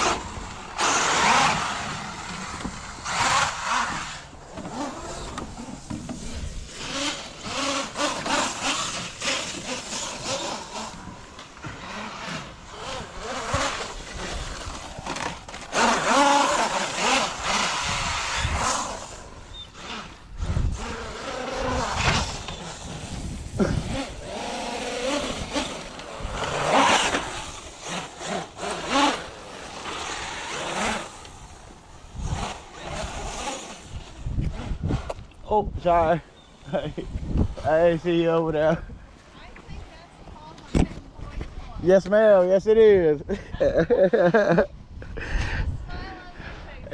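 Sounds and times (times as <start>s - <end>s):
rc truck motor whining: 0.0s - 35.4s.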